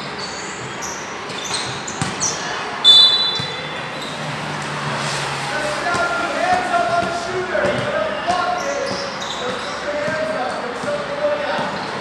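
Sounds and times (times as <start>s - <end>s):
sneakers squeaking on court: 0.0s - 4.7s, 5.9s - 12.0s
loud shrill squeak: 0.2s - 4.2s
basketball bouncing: 0.6s - 4.0s, 5.9s - 11.8s.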